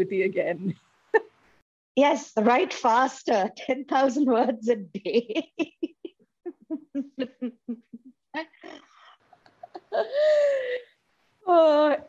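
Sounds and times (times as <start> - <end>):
woman laughing: 5.1 - 8.8, 9.5 - 10.8.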